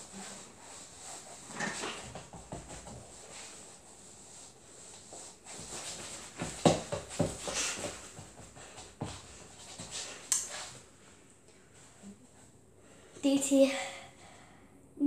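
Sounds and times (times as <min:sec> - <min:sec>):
clothing swishing: 0:00.0 - 0:11.2
feet thumping and shuffling on floor: 0:00.0 - 0:12.6.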